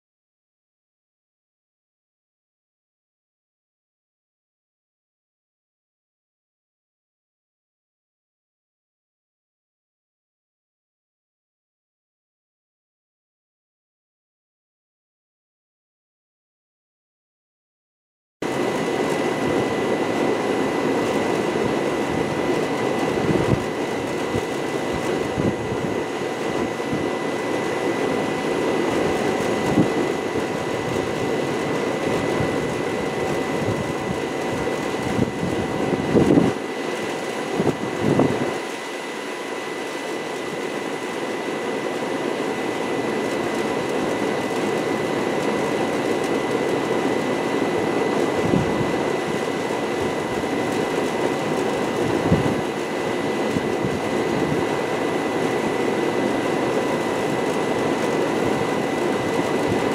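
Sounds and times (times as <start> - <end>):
thin high whine: 18.4 - 59.9.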